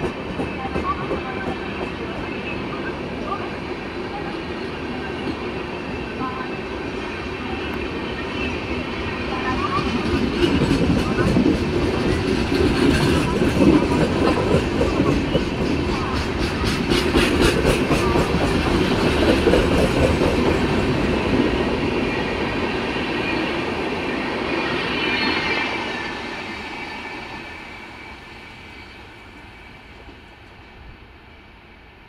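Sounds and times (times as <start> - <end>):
train wheels clicking over rail joints: 10.0 - 20.7.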